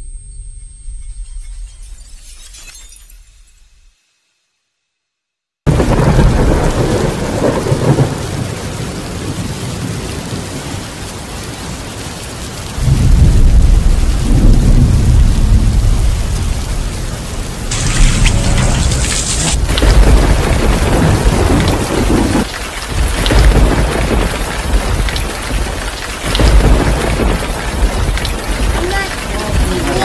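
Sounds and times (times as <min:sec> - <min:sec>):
rolling thunder: 0:05.7 - 0:11.0, 0:12.6 - 0:30.0
steady rain: 0:05.7 - 0:30.0.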